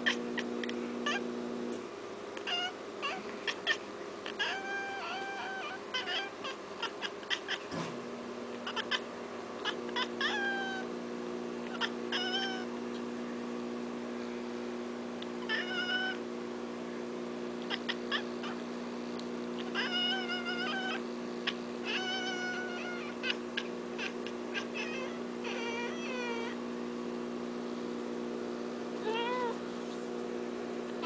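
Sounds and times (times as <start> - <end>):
cat chirping and chattering: 0.0 - 1.2, 2.4 - 7.7, 8.5 - 10.9, 11.7 - 12.7, 15.4 - 16.2, 17.6 - 18.6, 19.6 - 26.6, 29.0 - 29.6
steady low hum: 0.0 - 31.0.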